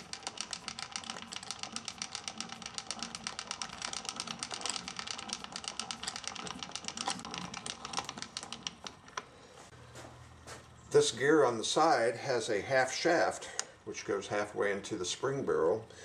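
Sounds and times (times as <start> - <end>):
ratchet clicking while cranking: 0.0 - 9.1.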